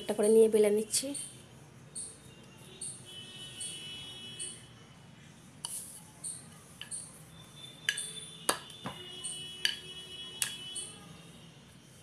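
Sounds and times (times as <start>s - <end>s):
rolling pin knocking on marble board: 7.8s - 9.0s.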